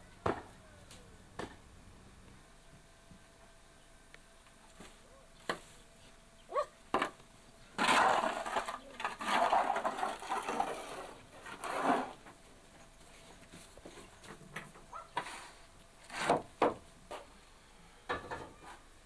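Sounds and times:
tool scraping manure across floor: 7.8 - 14.4, 15.2 - 16.5.

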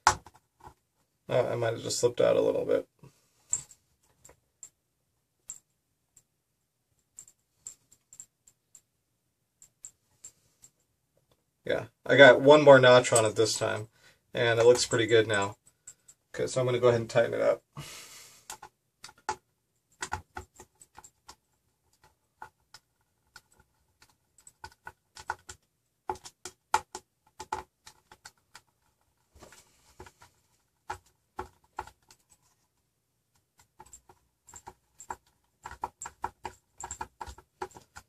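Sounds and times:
hardware clicks and taps: 0.0 - 0.8, 7.0 - 8.9, 9.6 - 11.4, 13.0 - 13.8, 14.4 - 16.5, 18.4 - 32.6, 33.3 - 38.0.

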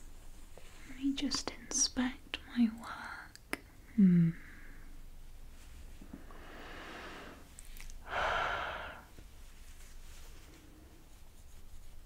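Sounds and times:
breath blown into microphone: 6.3 - 9.1.

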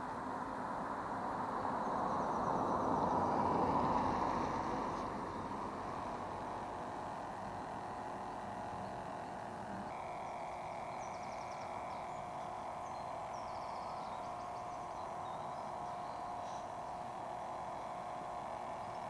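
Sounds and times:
model boat motor whining: 0.0 - 19.0
bird chirping trills: 7.1 - 19.0.

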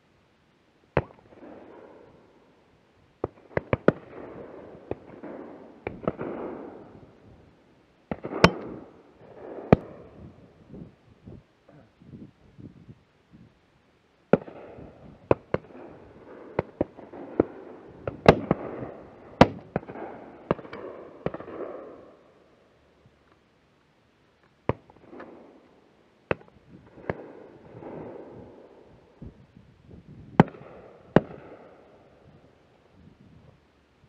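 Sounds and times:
shotgun shots with echo: 8.1 - 10.0, 14.3 - 22.0.

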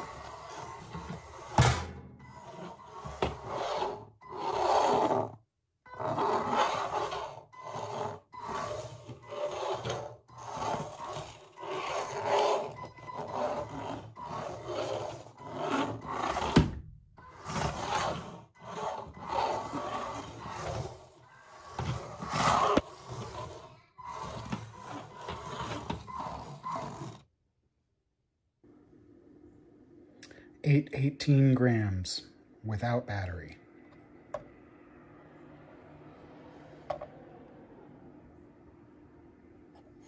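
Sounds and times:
wheels rubbing on wooden floor: 0.0 - 27.3.

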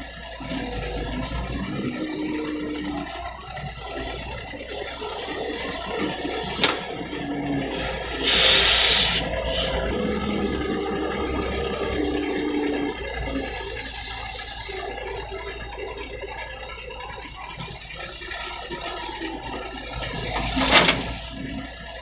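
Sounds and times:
excavator diesel engine under load: 0.0 - 22.0
loud hiss: 7.8 - 9.3.

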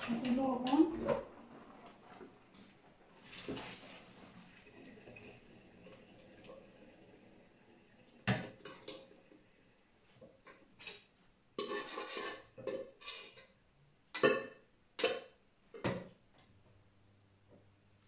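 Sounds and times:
pots and dishes clinking: 10.4 - 13.6, 14.2 - 16.0.

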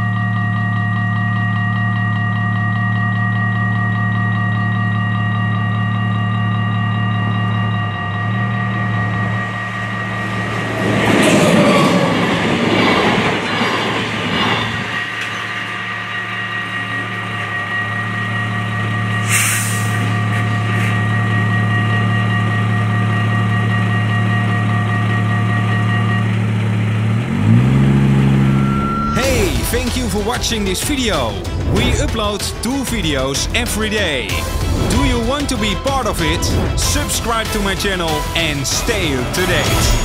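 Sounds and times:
level crossing warning bells: 0.0 - 40.0
train wheels rushing on rail: 9.2 - 27.7
wheel squeal: 27.3 - 29.3.

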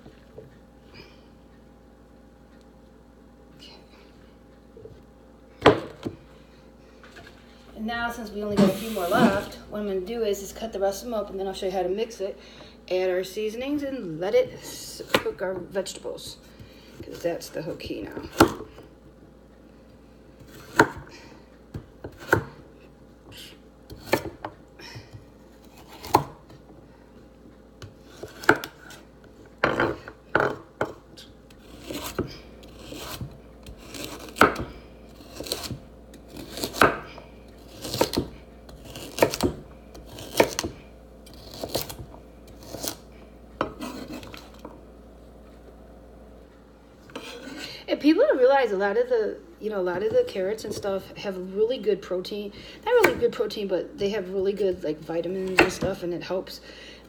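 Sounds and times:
knife chopping carrots on board: 18.2 - 18.7, 20.4 - 21.1, 21.8 - 22.6, 23.9 - 24.5, 25.8 - 26.5, 27.8 - 29.0, 29.6 - 43.0, 55.4 - 55.9.

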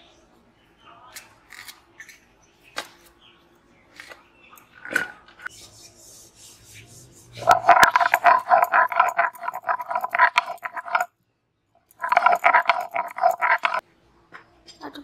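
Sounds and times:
stone pestle grinding on slab: 7.4 - 11.1, 12.0 - 13.8.

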